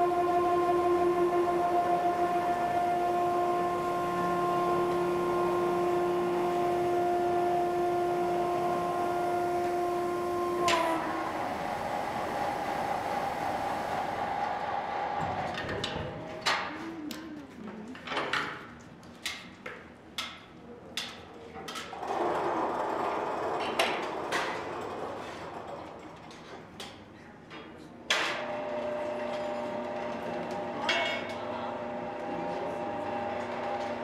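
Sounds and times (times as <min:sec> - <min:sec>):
machine hum with whine: 0:00.0 - 0:18.1
furnace rushing roar: 0:00.0 - 0:18.2, 0:21.8 - 0:26.9, 0:28.3 - 0:34.0.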